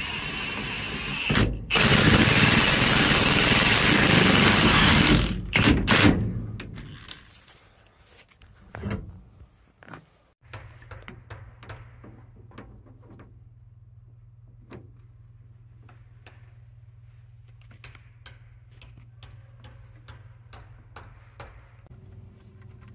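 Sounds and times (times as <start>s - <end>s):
impact wrench whining and hammering: 0.0s - 7.2s
parts clicking and tapping: 17.5s - 22.9s.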